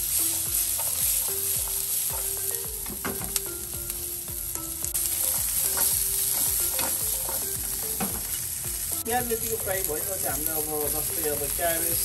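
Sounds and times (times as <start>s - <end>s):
vegetables sizzling in hot oil: 0.0s - 12.0s
utensil scraping and tapping pan: 5.0s - 8.4s.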